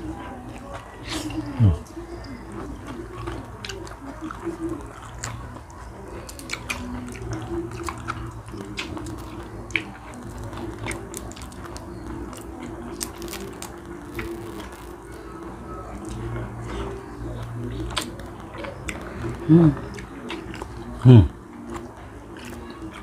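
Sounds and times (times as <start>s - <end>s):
chewing and mouth smacking: 0.0s - 23.0s
shrimp shells cracking: 8.8s - 15.0s.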